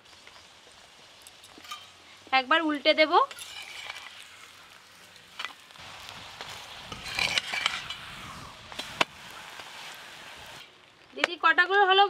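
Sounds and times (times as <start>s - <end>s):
light sizzle: 0.0s - 12.0s
metal spatula scraping griddle: 3.2s - 5.7s, 6.4s - 9.0s.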